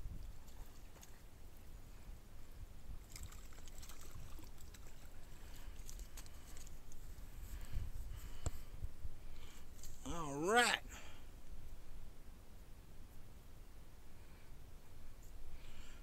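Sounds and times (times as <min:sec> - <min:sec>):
wind rumble on microphone: 0:00.0 - 0:01.2, 0:06.8 - 0:09.5
water splashing and lapping: 0:00.2 - 0:01.3, 0:03.0 - 0:06.7.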